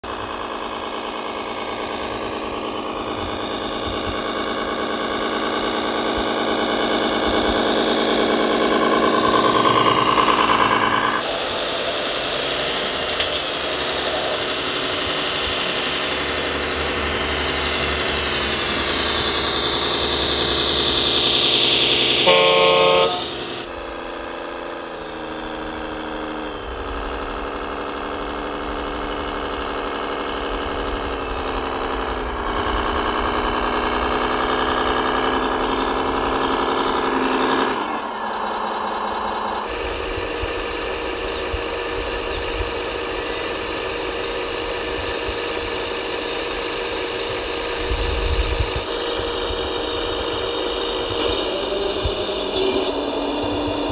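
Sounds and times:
model truck engine climbing: 0:00.0 - 0:53.9
air horn: 0:22.2 - 0:23.4.

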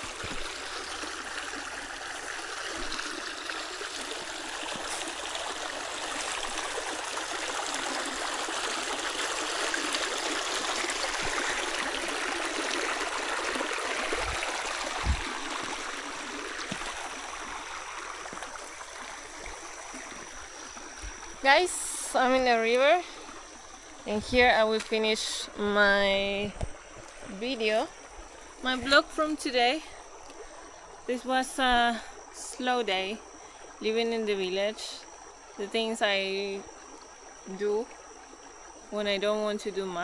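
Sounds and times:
stream running over stones: 0:00.0 - 0:40.0
dull low thumps: 0:14.1 - 0:15.6.

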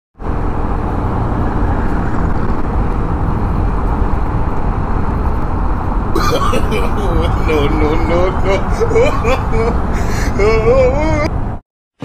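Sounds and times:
wind rumble on microphone: 0:00.2 - 0:06.2
scooter road noise: 0:00.2 - 0:11.6.

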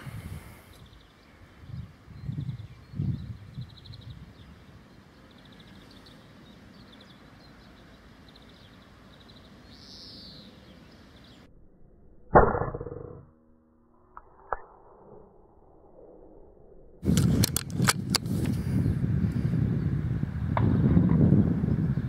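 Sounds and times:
small birds chirping: 0:00.0 - 0:11.5.

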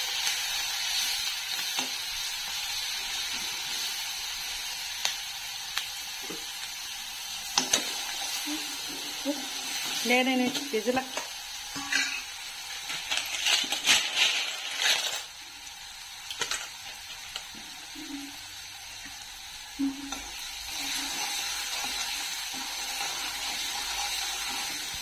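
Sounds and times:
curry sizzling in pan: 0:00.0 - 0:25.0
metal ladle scraping in pan: 0:11.7 - 0:15.3.

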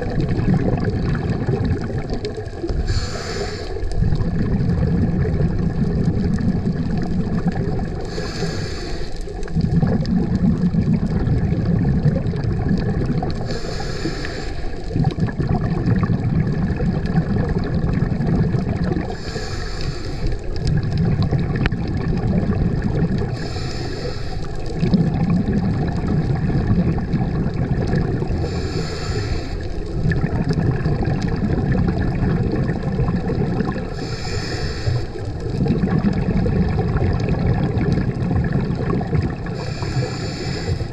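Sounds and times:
rumbling exhalation bubbles: 0:00.0 - 0:40.9
regulator inhalation hiss: 0:02.8 - 0:03.8, 0:08.0 - 0:09.3, 0:13.4 - 0:14.8, 0:19.1 - 0:20.4, 0:23.3 - 0:24.7, 0:28.4 - 0:29.8, 0:33.9 - 0:35.3, 0:39.5 - 0:40.9.

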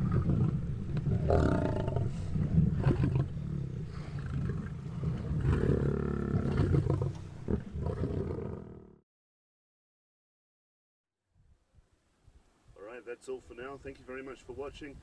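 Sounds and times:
lion snarl: 0:00.0 - 0:09.0
lions growling: 0:00.0 - 0:09.0.

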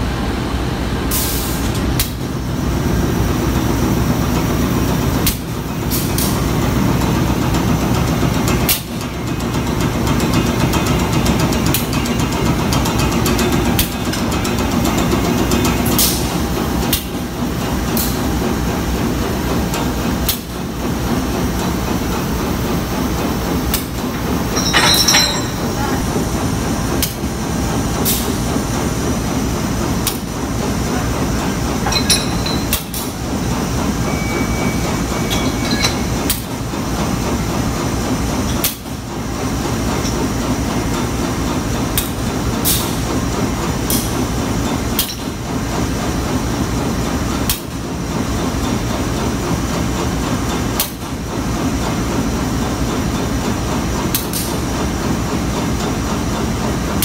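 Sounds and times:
train rumbling: 0:00.0 - 0:57.0
metallic clanks: 0:23.8 - 0:26.0, 0:31.8 - 0:33.2, 0:34.2 - 0:36.5.

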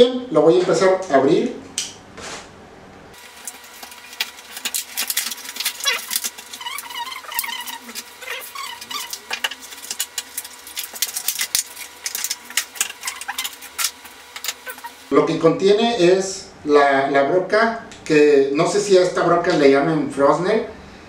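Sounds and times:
plastic packaging crackling: 0:03.2 - 0:15.1
plastic squeaks: 0:03.4 - 0:15.1.

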